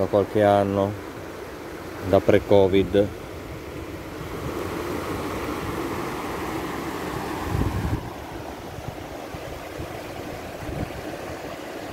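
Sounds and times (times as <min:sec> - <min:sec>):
river rushing over rocks: 0:00.4 - 0:11.9
wind buffeting microphone: 0:02.8 - 0:11.6.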